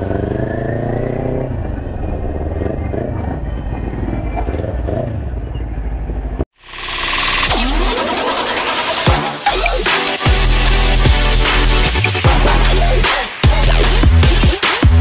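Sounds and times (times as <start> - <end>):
road and wind rumble: 0.0 - 6.5
loud electronic music: 6.6 - 15.0.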